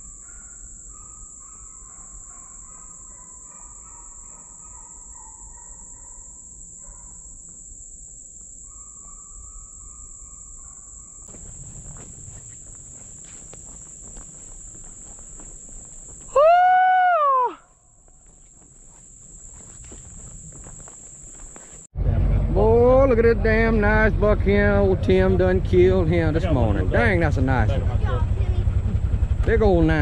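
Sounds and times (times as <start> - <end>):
distant wavering calls: 0.0 - 7.3, 8.6 - 21.8
high insect drone: 0.0 - 21.9, 23.6 - 30.0
footsteps in leaf litter: 11.3 - 16.3.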